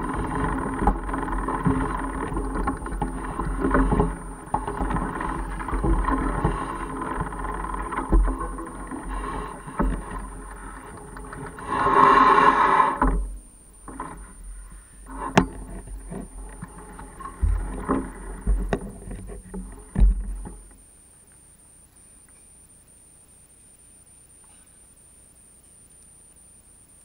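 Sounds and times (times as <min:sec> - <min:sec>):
bike rattling over rough ground: 0:00.0 - 0:20.8
loud buzzing hum: 0:00.0 - 0:21.0.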